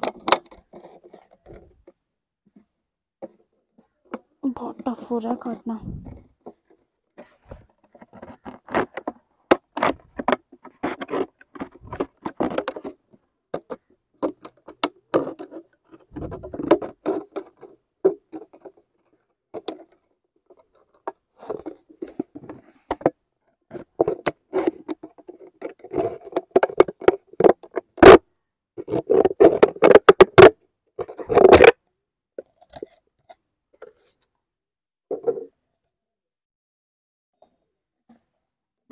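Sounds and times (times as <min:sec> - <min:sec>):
plastic bottle being cut: 0:08.1 - 0:13.0, 0:14.7 - 0:18.7, 0:31.1 - 0:31.8.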